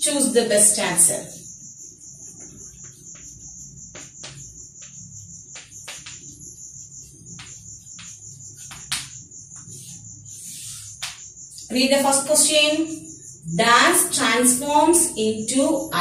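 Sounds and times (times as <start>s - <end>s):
chalk tapping and scraping: 1.3s - 11.7s.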